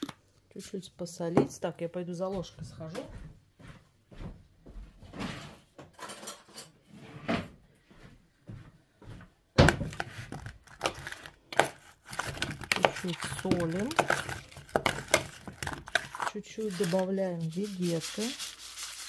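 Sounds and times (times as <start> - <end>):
household knocks and rustles: 2.4 - 11.0
metal spoon scraping plastic bowl: 9.9 - 19.0.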